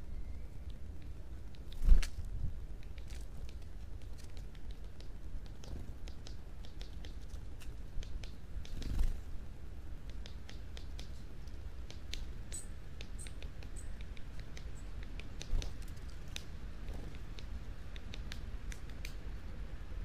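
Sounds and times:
thin high bird calls: 0:00.0 - 0:00.9, 0:12.0 - 0:16.4
birds pecking in dry leaves: 0:00.6 - 0:19.7.

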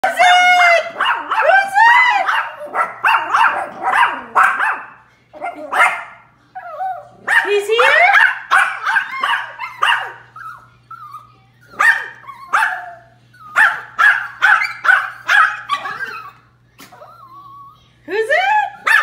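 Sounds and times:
small dogs barking: 0:00.3 - 0:17.4, 0:18.7 - 0:19.0.

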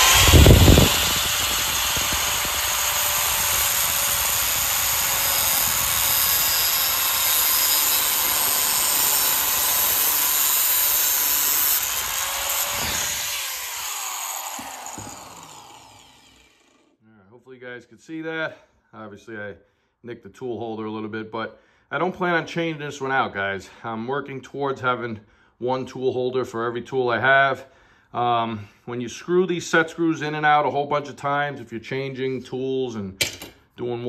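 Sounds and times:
angle grinder grinding metal: 0:00.0 - 0:16.9.

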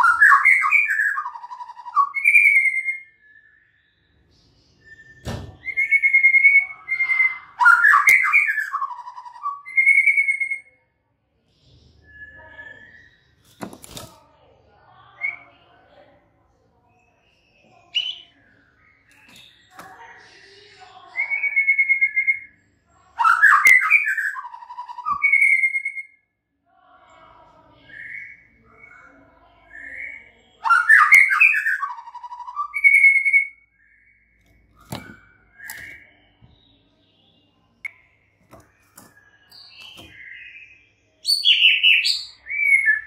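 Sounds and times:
bird singing whistled phrases: 0:00.0 - 0:04.2, 0:04.8 - 0:10.7, 0:12.0 - 0:13.4, 0:17.2 - 0:19.8, 0:21.1 - 0:22.6, 0:23.2 - 0:26.2, 0:29.7 - 0:38.0, 0:38.8 - 0:43.0.

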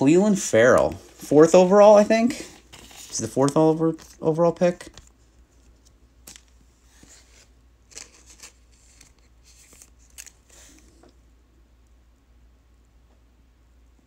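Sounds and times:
low steady hum: 0:00.0 - 0:14.0
plastic sleeve crinkling: 0:00.4 - 0:07.2.

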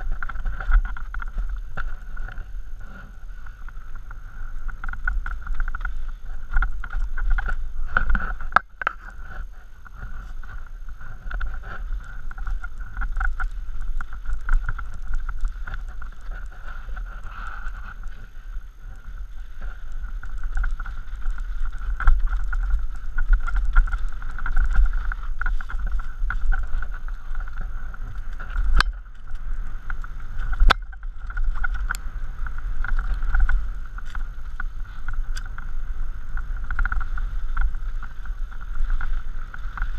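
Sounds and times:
wind buffeting microphone: 0:00.0 - 0:39.9
tyres rolling over dirt and stones: 0:18.8 - 0:39.9.

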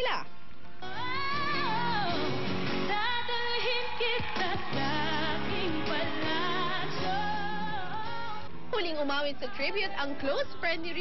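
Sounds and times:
woman singing pop ballad: 0:00.8 - 0:08.5
musical accompaniment: 0:00.8 - 0:08.7.

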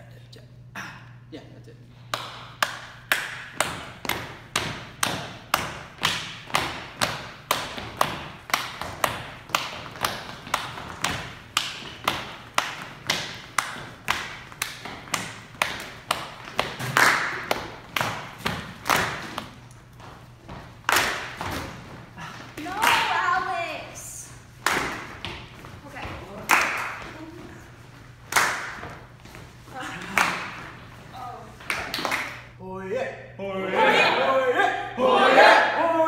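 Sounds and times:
people clapping in time: 0:02.0 - 0:19.7, 0:20.8 - 0:21.4, 0:26.5 - 0:27.2, 0:28.3 - 0:28.9, 0:31.6 - 0:32.5.

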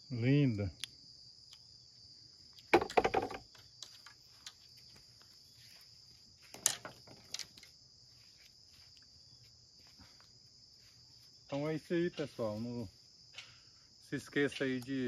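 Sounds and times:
insects chirring: 0:00.0 - 0:15.0
clattering handling noise: 0:06.5 - 0:07.7.

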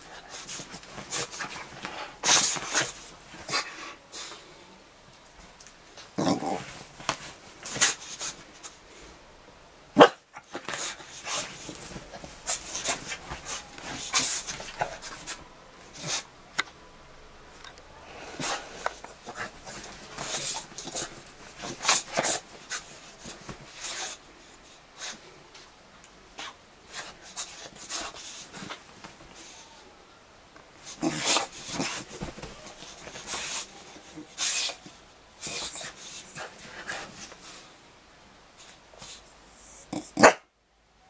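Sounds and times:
bedding rustling: 0:00.0 - 0:04.4, 0:05.1 - 0:09.2, 0:09.9 - 0:29.8, 0:30.5 - 0:37.8
dog grunts and whimpers: 0:30.8 - 0:34.7.

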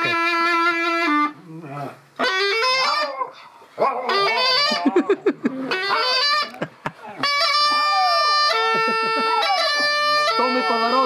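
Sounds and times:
bagpipe playing: 0:00.0 - 0:01.4, 0:02.2 - 0:02.9, 0:04.1 - 0:04.9, 0:05.6 - 0:06.6, 0:07.2 - 0:11.0
dog howling: 0:01.6 - 0:06.5, 0:07.2 - 0:11.0.

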